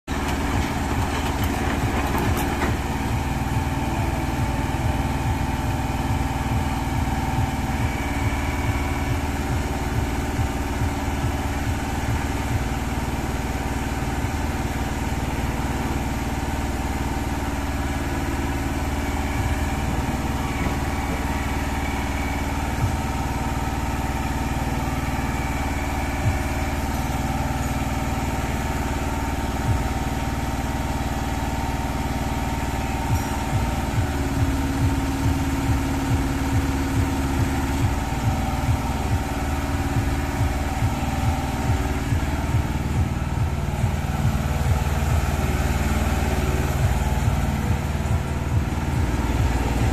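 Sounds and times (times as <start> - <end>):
excavator diesel engine running: 0.0 - 49.9.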